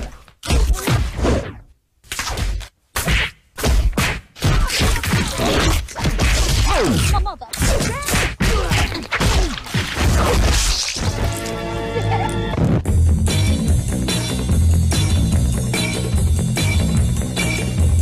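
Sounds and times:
music with drums: 0:12.8 - 0:18.0.

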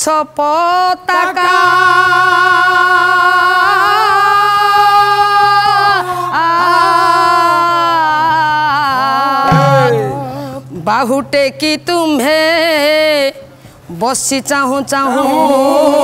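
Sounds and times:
low drone: 0:09.5 - 0:10.6.

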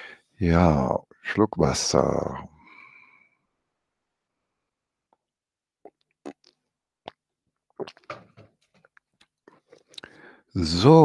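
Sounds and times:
person gulping water: 0:05.8 - 0:10.2.

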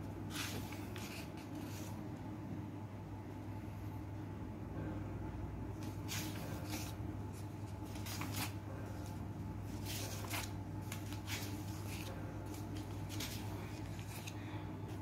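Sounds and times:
steady low hum: 0:00.0 - 0:15.0
pages flipping: 0:00.3 - 0:01.9, 0:05.8 - 0:14.4.

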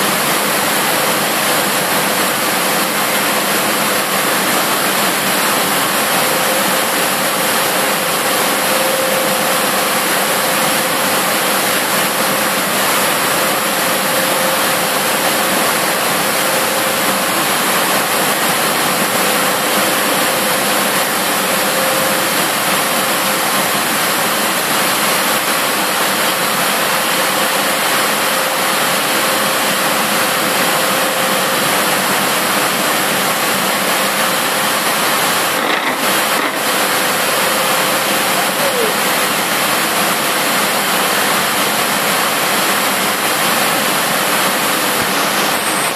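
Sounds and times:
factory machinery rushing: 0:00.0 - 0:45.9.

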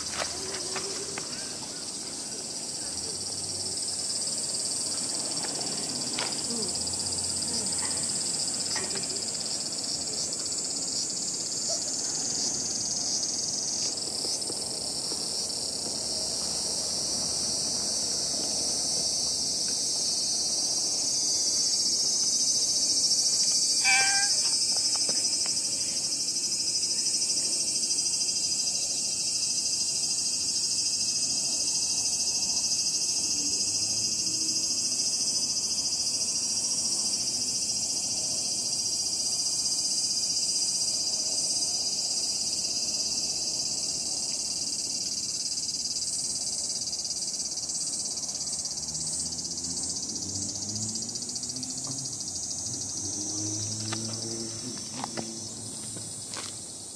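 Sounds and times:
insects shrilling: 0:17.9 - 0:48.5
short pitched call: 0:23.8 - 0:24.6.

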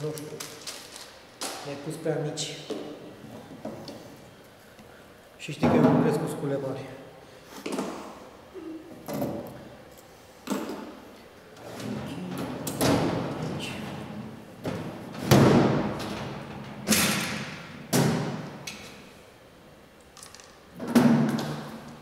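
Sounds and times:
items knocking and thudding: 0:11.8 - 0:13.7, 0:14.6 - 0:18.6, 0:20.3 - 0:21.8.

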